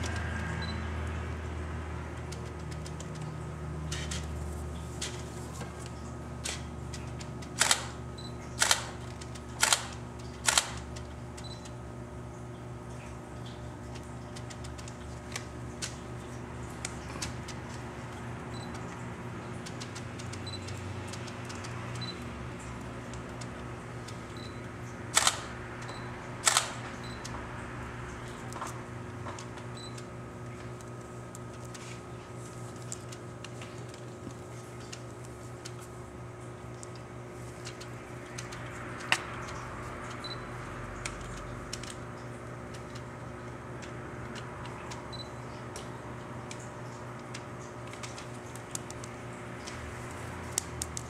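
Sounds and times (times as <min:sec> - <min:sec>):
sharp double clicks: 0:08.6 - 0:08.9, 0:25.2 - 0:25.5, 0:26.4 - 0:26.8.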